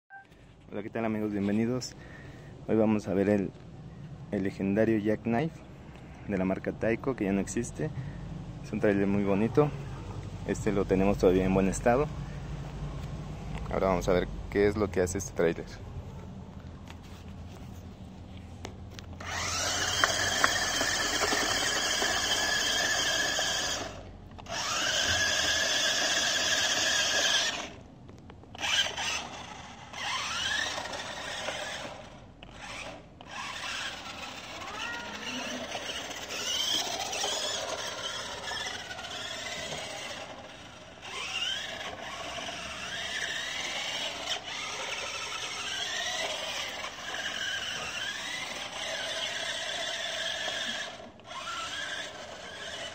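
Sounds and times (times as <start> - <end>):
toy truck motor whining: 19.0 - 27.8, 28.5 - 52.9.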